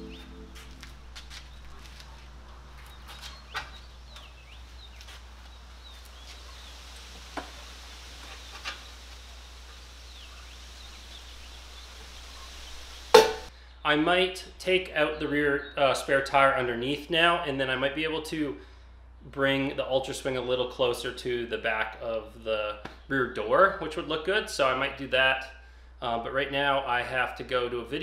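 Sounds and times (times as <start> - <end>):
background music: 0.0 - 0.9
small birds chirping: 0.0 - 13.9.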